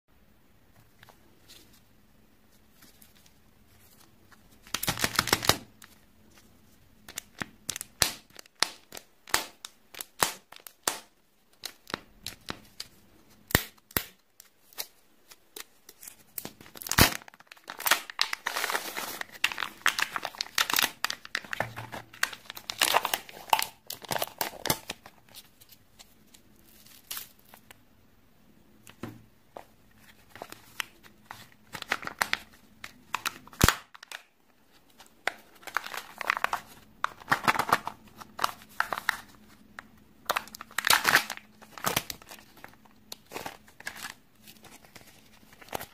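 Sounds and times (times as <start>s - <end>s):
plastic foil wrapper crinkling: 15.6s - 27.7s, 35.0s - 39.6s, 40.2s - 45.9s.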